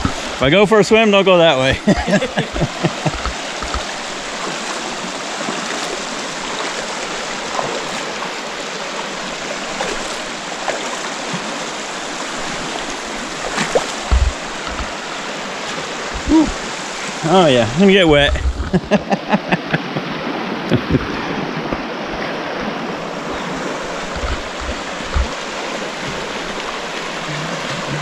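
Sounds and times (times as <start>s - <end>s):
river rushing over boulders: 0.0s - 28.0s
dull thumps: 14.0s - 14.9s.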